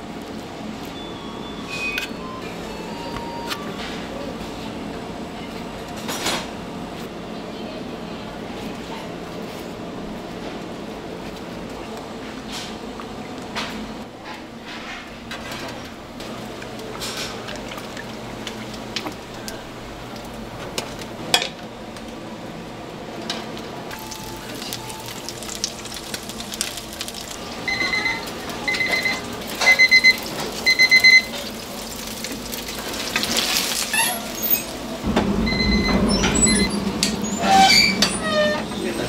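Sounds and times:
low rumble: 0:34.8 - 0:39.0.

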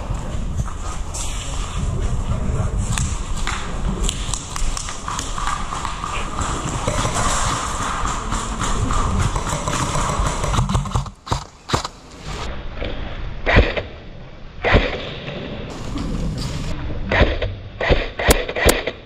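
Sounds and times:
footsteps on concrete with rubble: 0:00.0 - 0:12.3.

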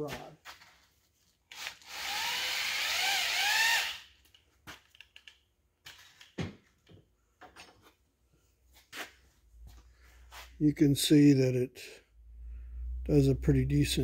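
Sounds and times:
electric drill cutting metal: 0:01.6 - 0:04.0.

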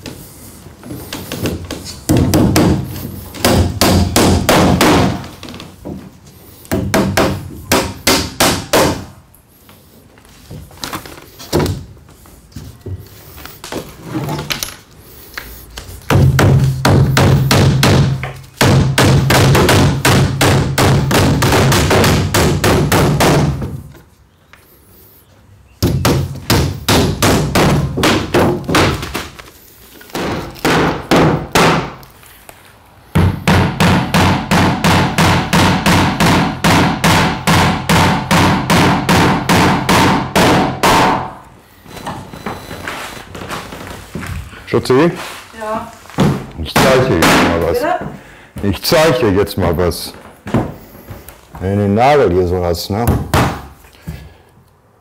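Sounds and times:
hammer driving nails into wood: 0:01.3 - 0:05.3, 0:16.1 - 0:23.8, 0:25.8 - 0:29.4, 0:30.1 - 0:32.0, 0:33.2 - 0:41.4.

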